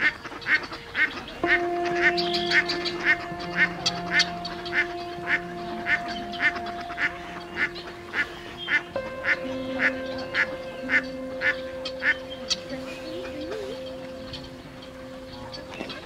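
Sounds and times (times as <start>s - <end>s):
droning music: 0.0s - 16.0s
waterfowl calling: 0.0s - 16.0s.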